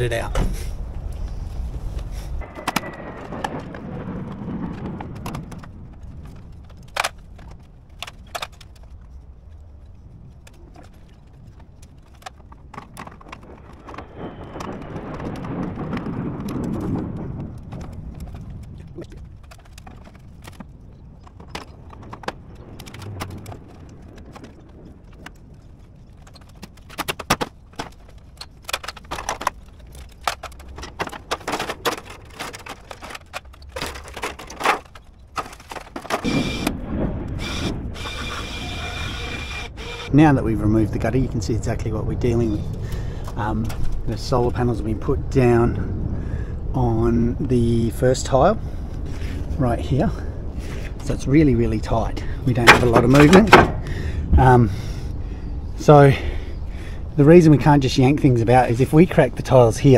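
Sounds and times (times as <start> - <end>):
metal gutter knocks and clicks: 26.1 - 36.3, 52.6 - 53.9.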